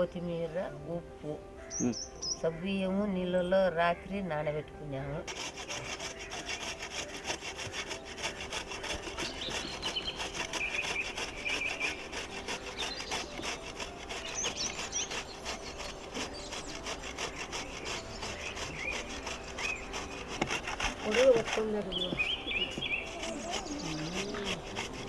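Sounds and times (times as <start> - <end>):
grater rasping: 5.2 - 25.0.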